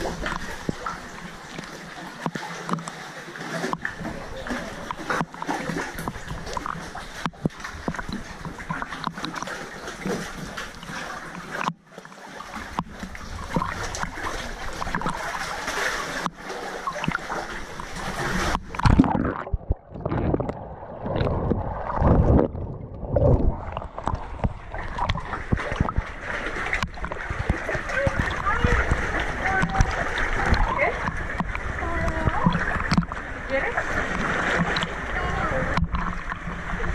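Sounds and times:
sea water splashing: 0.0 - 36.9
muffled underwater gurgling: 12.6 - 36.9.

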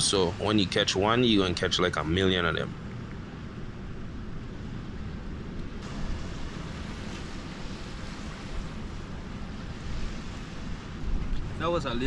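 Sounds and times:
wind blowing across microphone: 0.0 - 12.0
small waves washing on shore: 4.9 - 12.0.

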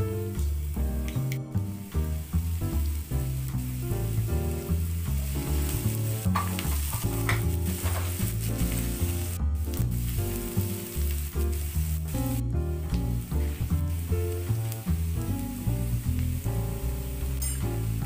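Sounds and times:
background music: 0.0 - 18.0
onions sizzling in oil: 0.0 - 18.0
spatula stirring in pan: 3.3 - 12.3.

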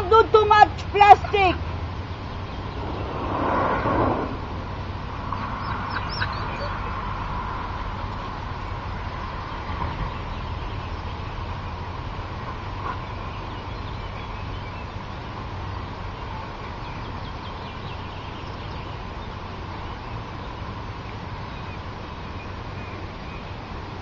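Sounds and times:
open-air background noise: 0.0 - 24.0
faint bird chirps: 5.4 - 6.9.

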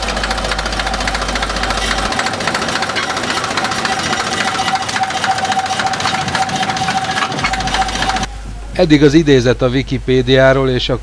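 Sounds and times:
diesel locomotive engine idling: 0.0 - 11.0.

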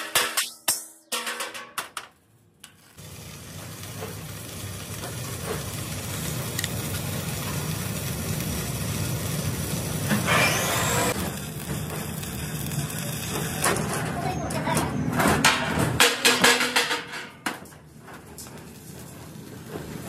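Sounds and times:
hammer striking steel: 0.0 - 2.1
arc welding crackling and hissing: 2.2 - 14.8, 17.7 - 20.0.

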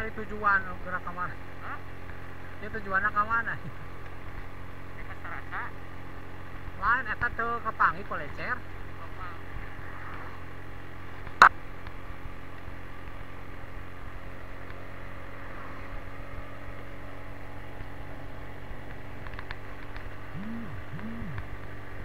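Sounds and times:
motorcycle engine cruising: 8.6 - 22.0
rising and falling tones: 20.4 - 21.4.

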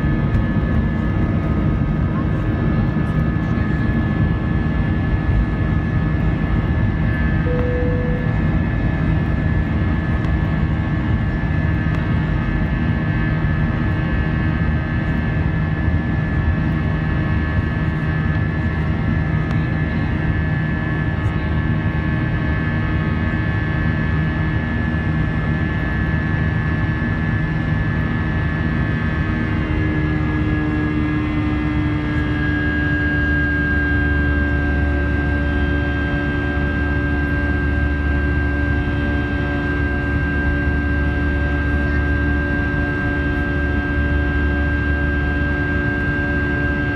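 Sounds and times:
jet engine drone with whine: 0.0 - 46.9
low hum: 7.2 - 10.4.

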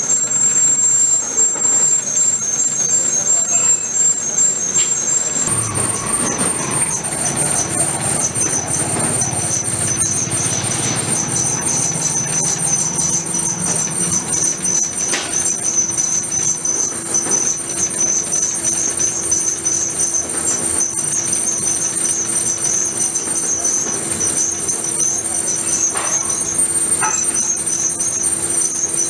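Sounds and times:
high-pitched drill cutting whine: 0.0 - 29.0.

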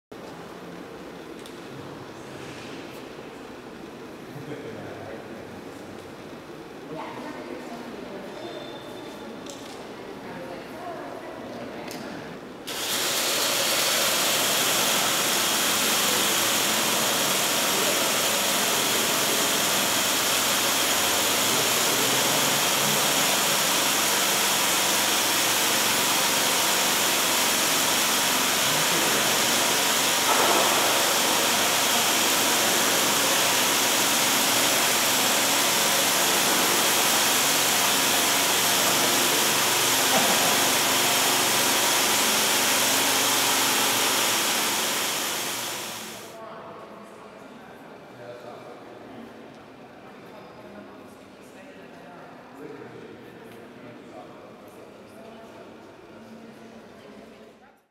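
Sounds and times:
motor and propeller running: 12.7 - 46.3.

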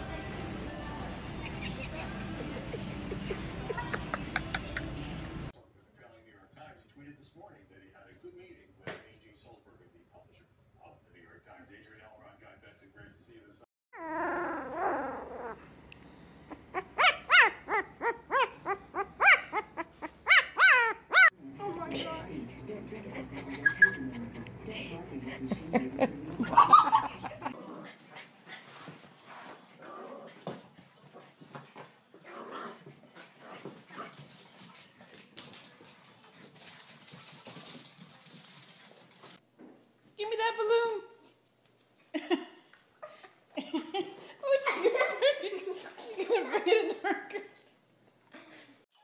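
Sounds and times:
puppy yelping: 14.0 - 15.7, 16.5 - 21.3.

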